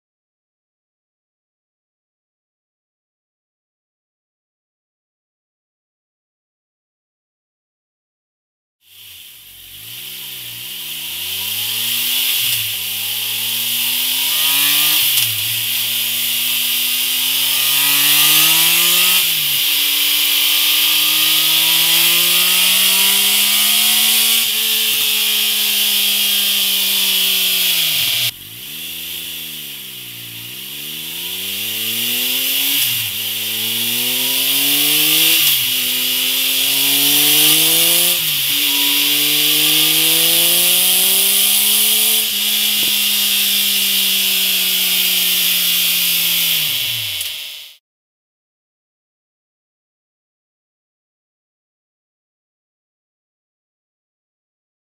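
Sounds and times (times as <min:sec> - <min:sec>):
motorcycle engine accelerating: 0:08.9 - 0:47.8.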